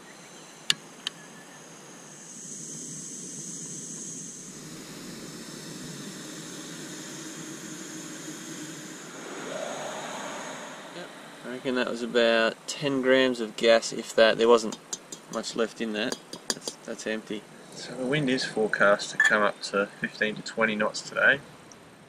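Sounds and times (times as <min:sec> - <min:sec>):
gas burner hissing: 0:00.6 - 0:20.4
igniter clicks: 0:14.6 - 0:15.5.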